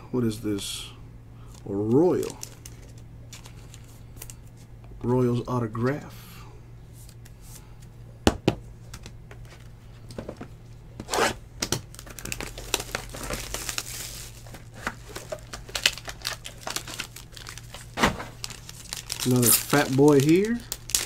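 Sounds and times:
packaging crinkling and tearing: 2.1 - 4.4, 11.7 - 21.0.

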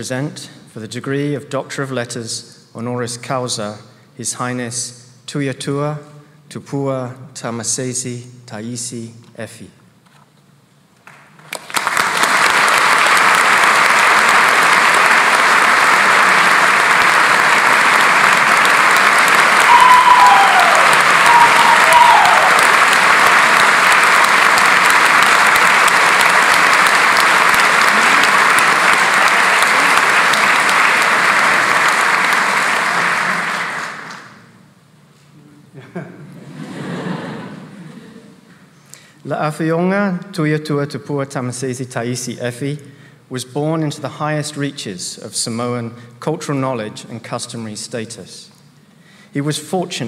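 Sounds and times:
large audience applauding: 11.0 - 34.5.

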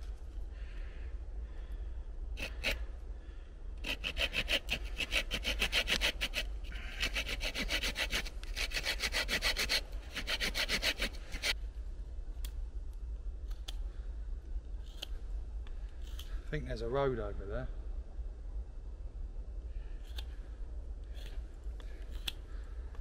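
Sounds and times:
folding saw cutting wood: 3.8 - 11.6.

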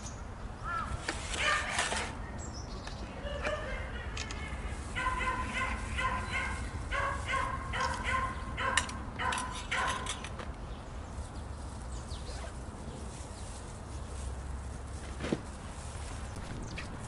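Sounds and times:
dog barking: 1.4 - 1.8, 3.3 - 4.2, 5.0 - 10.1.

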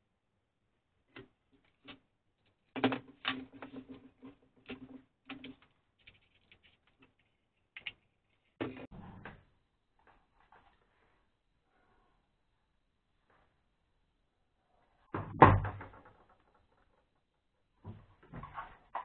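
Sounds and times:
plastic parts clicking and rattling: 1.1 - 8.9.

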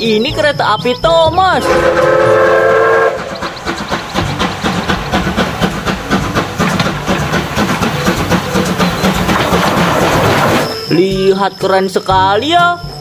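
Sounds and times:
train clickety-clack: 1.1 - 12.7
train whistle blowing: 1.6 - 3.5, 9.8 - 11.2.

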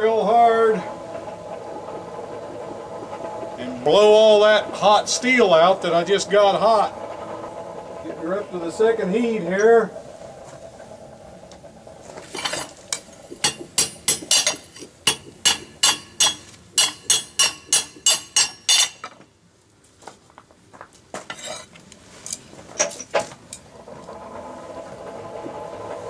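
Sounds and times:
hammer striking hot steel: 13.3 - 19.2.

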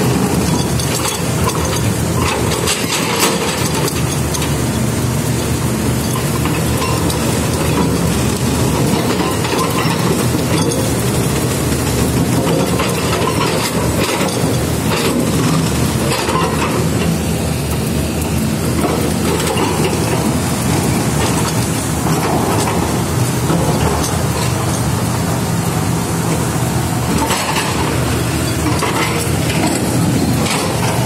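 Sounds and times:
hydraulic breaker hammering concrete: 0.0 - 17.9
excavator engine running: 0.0 - 31.0.

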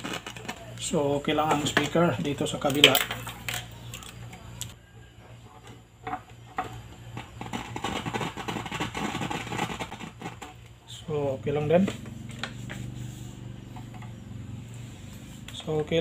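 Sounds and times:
scratchy crackling: 7.2 - 10.6.

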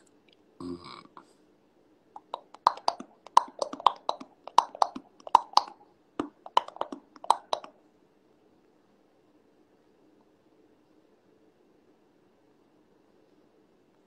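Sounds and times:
sharp rhythmic clicks and taps: 2.2 - 7.8.

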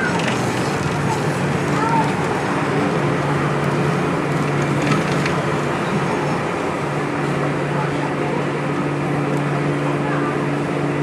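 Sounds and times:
low motor hum: 0.0 - 11.0
tram wheels rolling on rail: 0.0 - 11.0.

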